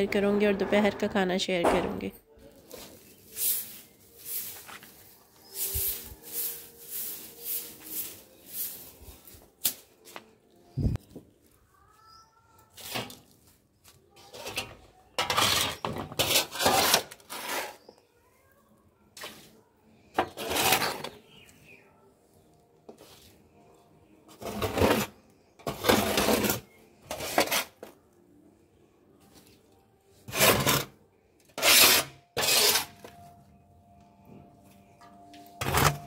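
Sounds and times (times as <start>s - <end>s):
metal scoop scraping ash: 2.6s - 9.8s, 12.7s - 13.4s, 14.2s - 18.0s, 19.2s - 21.8s, 24.3s - 27.9s, 30.2s - 33.2s, 35.6s - 36.0s.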